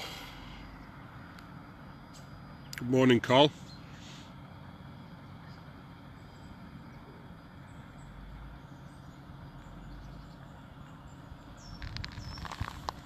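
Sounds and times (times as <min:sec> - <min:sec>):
faint bird chirps: 0:03.4 - 0:12.8.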